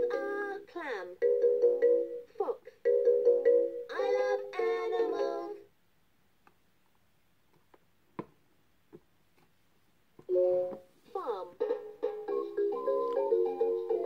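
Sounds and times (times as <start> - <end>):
tinny electronic toy tune: 1.2 - 2.2.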